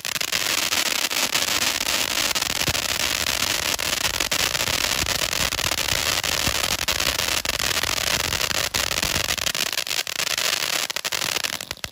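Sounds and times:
firework fountain hissing: 0.0s - 11.9s
sharp crackles: 0.0s - 11.9s.

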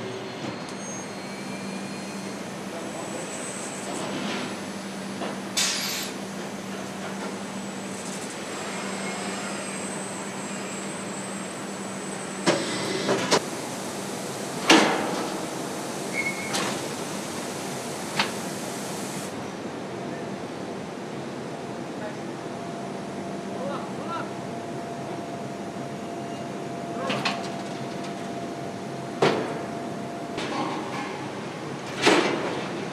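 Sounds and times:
machinery hum and hiss: 0.0s - 32.9s.

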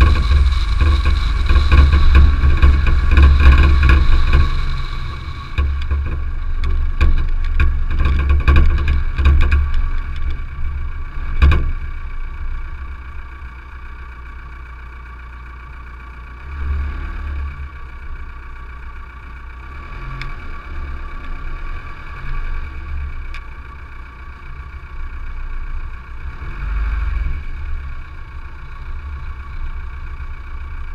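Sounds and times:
sharp knocks and clatter: 0.0s - 12.2s
tyres rumbling on gravel: 0.0s - 15.7s
car engine running: 0.0s - 30.9s.

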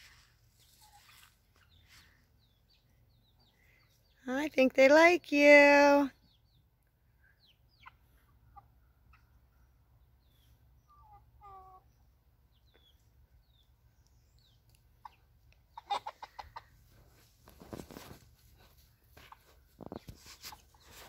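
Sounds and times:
chicks peeping: 0.6s - 4.2s, 6.2s - 16.8s
chicken clucking call: 10.9s - 11.9s, 15.0s - 16.8s.

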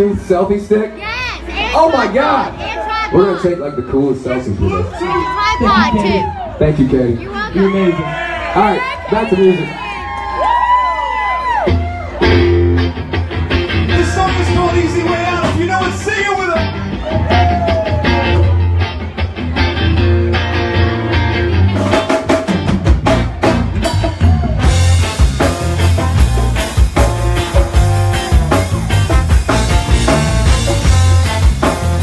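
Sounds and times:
bass guitar: 4.3s - 32.0s
electric guitar: 11.3s - 32.0s
drum kit: 11.5s - 32.0s.

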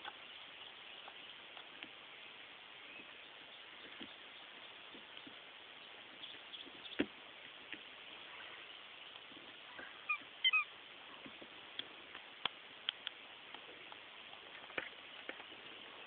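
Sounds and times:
squeaky toy squeaking: 10.1s - 10.7s.

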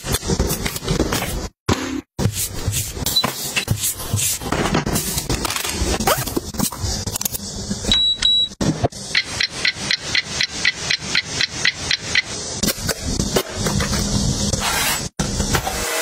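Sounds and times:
high electronic beep: 7.9s - 12.2s
fast electronic ticks: 9.1s - 12.4s.

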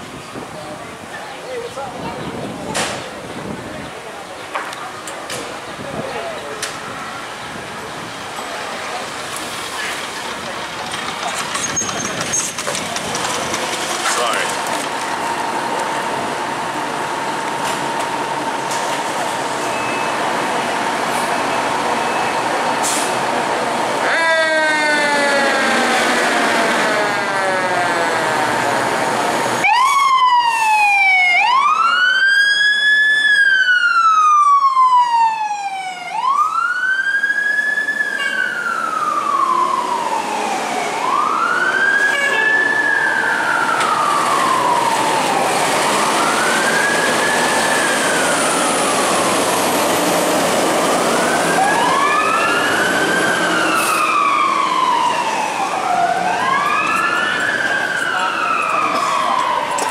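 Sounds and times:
fire truck siren wailing: 10.3s - 59.9s
second siren: 24.0s - 59.9s.

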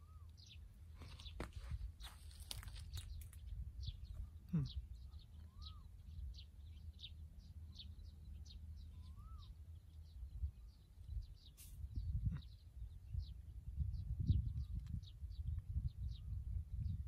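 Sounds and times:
whistled bird notes: 0.0s - 1.3s, 3.9s - 6.2s, 8.8s - 9.6s
small birds chirping: 0.0s - 17.0s
low steady rumble: 3.4s - 17.0s.

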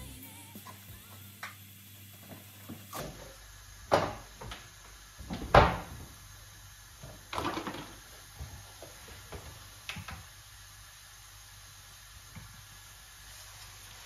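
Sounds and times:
fridge door shutting: 5.2s - 6.1s.

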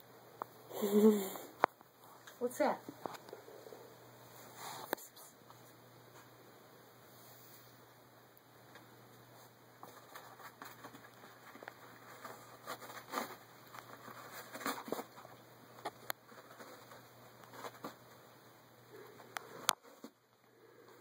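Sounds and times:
cat scratching paper roll: 9.8s - 18.4s.

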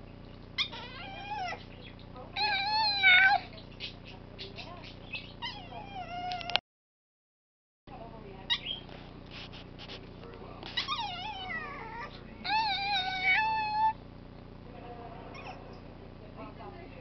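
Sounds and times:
small dog whining: 0.6s - 1.7s, 2.4s - 4.0s, 5.1s - 6.6s, 10.7s - 14.0s, 15.3s - 15.6s.

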